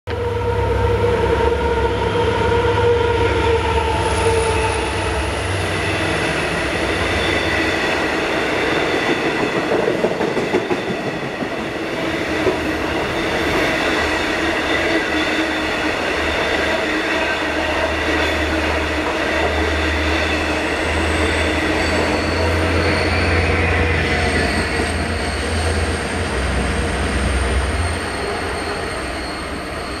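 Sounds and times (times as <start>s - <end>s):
train rumbling past: 0.1s - 30.0s
wheels squealing: 18.3s - 30.0s.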